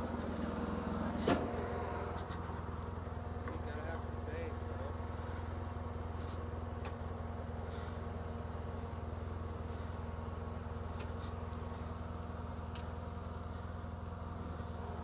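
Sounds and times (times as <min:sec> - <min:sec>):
engine idling: 0:00.0 - 0:15.0
light clicks: 0:11.0 - 0:13.0.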